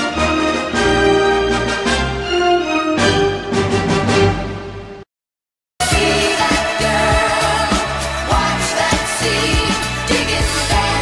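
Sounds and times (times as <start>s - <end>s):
music with steady beat and bass: 5.8s - 11.0s.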